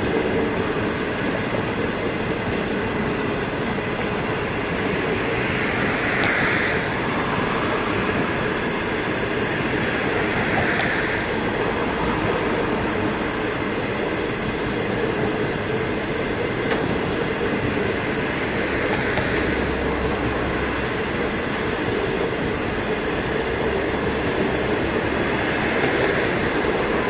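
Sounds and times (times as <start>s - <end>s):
train wheels rolling on rails: 0.0s - 27.0s.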